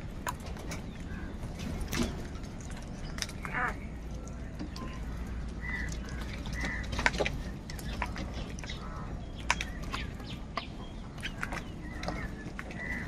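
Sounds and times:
crows pecking plastic bowl: 0:00.0 - 0:13.0.

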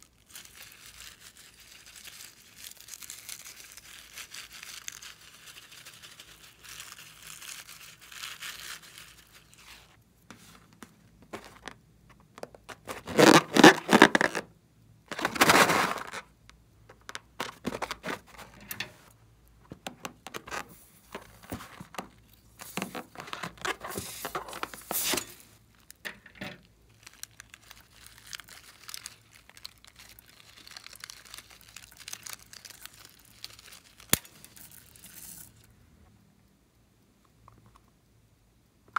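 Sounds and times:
rubber balloons rubbing and tearing: 0:12.6 - 0:14.5, 0:15.1 - 0:16.3.

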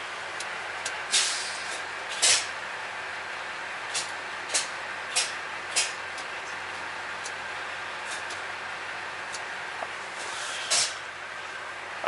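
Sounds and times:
air brake hissing bursts: 0:01.1 - 0:02.6, 0:03.9 - 0:06.0, 0:10.1 - 0:11.1.

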